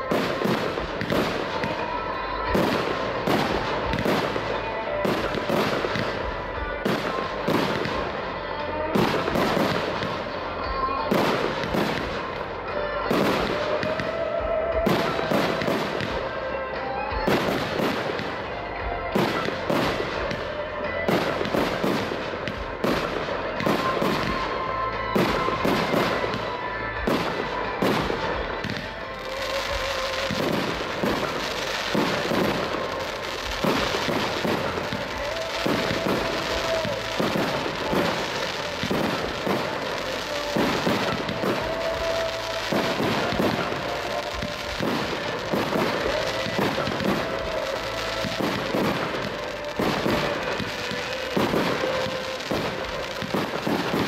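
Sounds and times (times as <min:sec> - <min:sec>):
fireworks shells bursting: 0:00.0 - 0:54.0.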